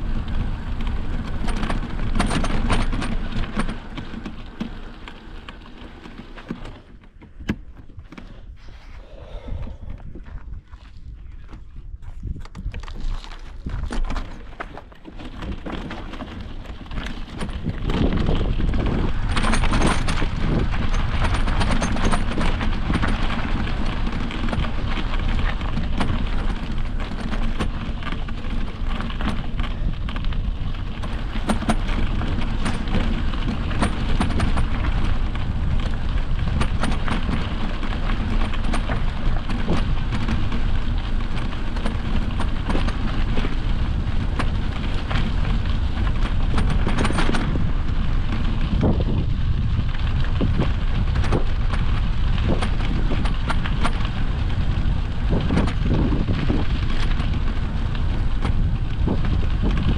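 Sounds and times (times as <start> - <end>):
bike tyres and frame rattling: 0.0 - 59.9
wind buffeting the microphone: 6.6 - 59.9.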